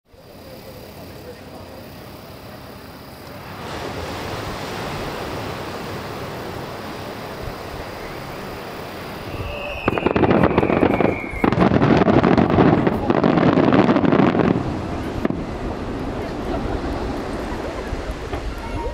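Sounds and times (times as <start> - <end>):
murmur of crowd: 0.1 - 3.5, 12.3 - 18.9
fireworks crackling: 0.2 - 18.9
surf: 1.0 - 18.9
high firework whistle: 6.8 - 14.5.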